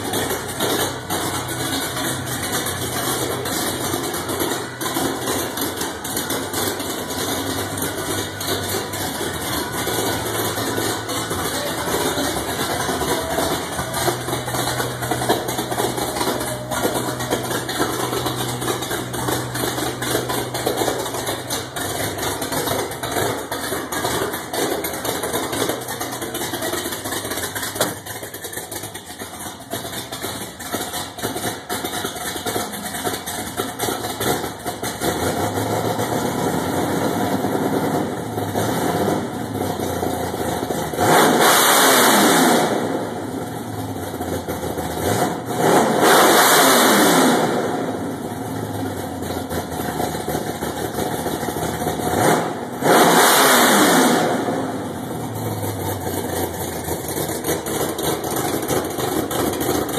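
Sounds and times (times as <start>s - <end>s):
engine revving: 0.0s - 28.8s, 30.2s - 40.0s, 40.8s - 43.5s, 44.5s - 48.4s, 49.2s - 59.9s
vee eight engine idling lumpy: 0.0s - 29.7s.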